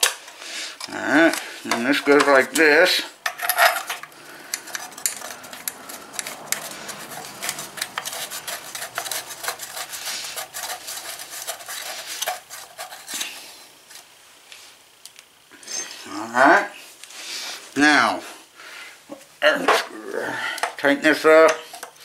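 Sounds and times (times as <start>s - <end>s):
small metallic clicks and scrapes: 0.0s - 14.1s, 21.4s - 22.0s.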